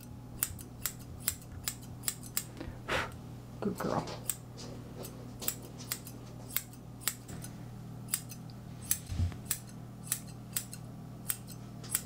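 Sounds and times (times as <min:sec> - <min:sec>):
scissors snipping hair: 0:00.0 - 0:02.5, 0:05.4 - 0:07.5, 0:08.1 - 0:12.0
low steady hum: 0:00.0 - 0:12.0.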